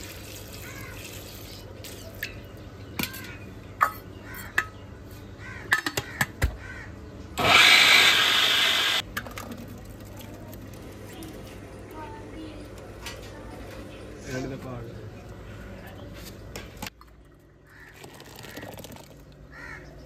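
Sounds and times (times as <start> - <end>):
electric mixer grinder running: 7.4 - 9.0.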